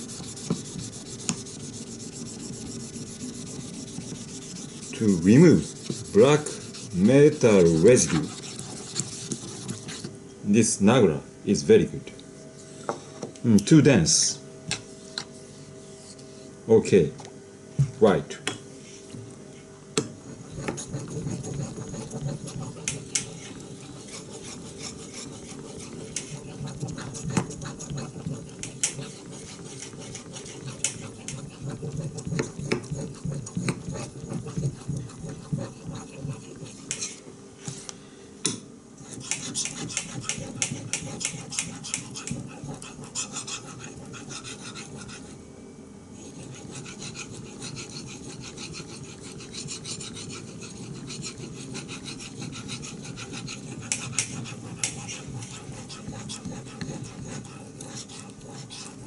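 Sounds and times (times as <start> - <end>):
knife rasping on whetstone: 0.0 - 10.1, 20.2 - 37.2, 39.0 - 45.4, 46.2 - 59.0.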